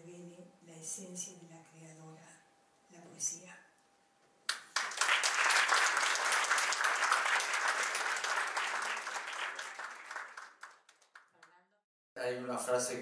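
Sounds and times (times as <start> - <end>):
audience applauding: 4.5 - 11.6.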